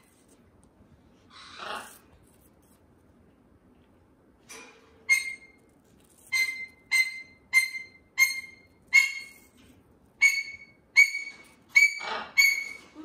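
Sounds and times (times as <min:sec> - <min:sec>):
bird crunching apple: 0:05.2 - 0:10.6.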